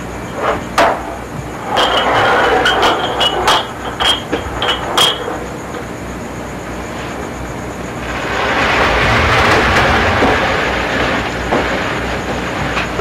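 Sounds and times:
electric fan whooshing: 5.5s - 13.0s.

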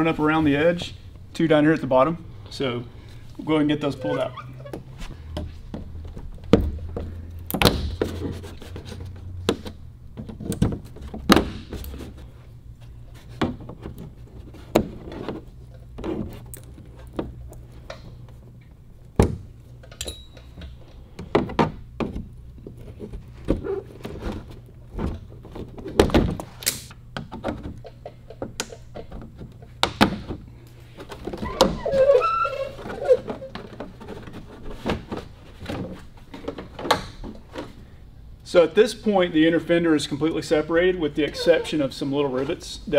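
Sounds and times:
plastic retainers clicking and thunking: 24.9s - 31.8s.

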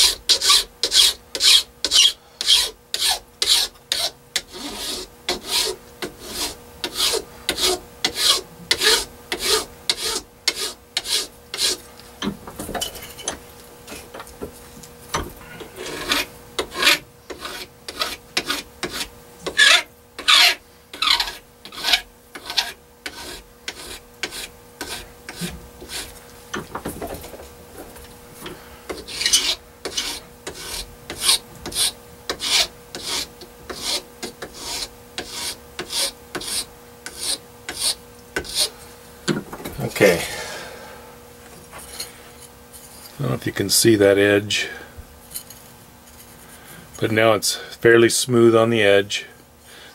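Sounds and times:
file rasping on metal edge: 0.0s - 11.8s, 15.6s - 26.2s, 28.9s - 38.7s.

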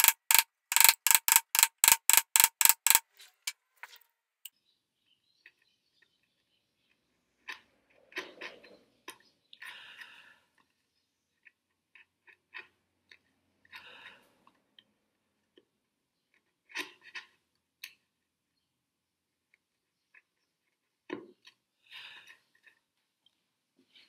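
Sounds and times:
chisel clicks: 0.0s - 3.0s
chisel scraping wood: 0.0s - 3.0s.

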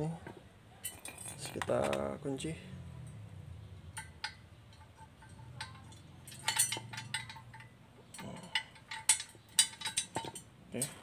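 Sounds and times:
metal pin and chain clinking: 0.8s - 2.1s, 3.9s - 11.0s.

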